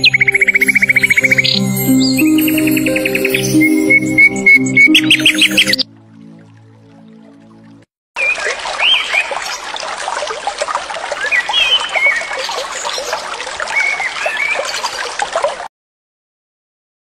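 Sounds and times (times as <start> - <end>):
birds chirping: 0.0 - 5.8
water rushing over rocks: 8.2 - 15.7.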